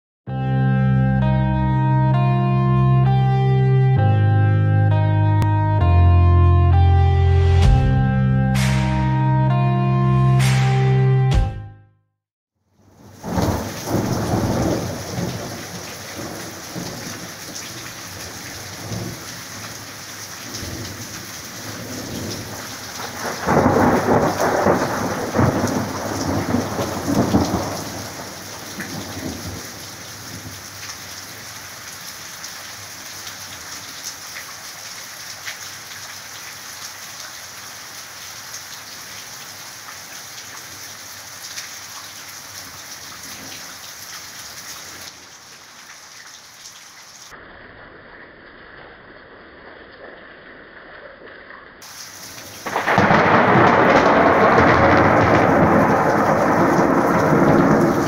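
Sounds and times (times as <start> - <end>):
steady rain: 12.7 - 58.0
thunder rumbling: 13.0 - 19.9, 20.5 - 30.6, 51.8 - 58.0.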